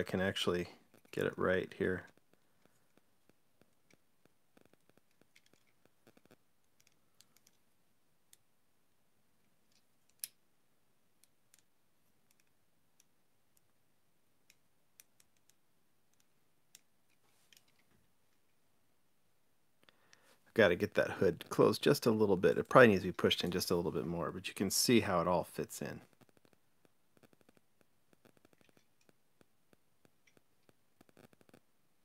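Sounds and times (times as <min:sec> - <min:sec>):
small parts clicking and tapping: 0:00.0 - 0:08.6, 0:09.4 - 0:18.6, 0:25.8 - 0:31.7.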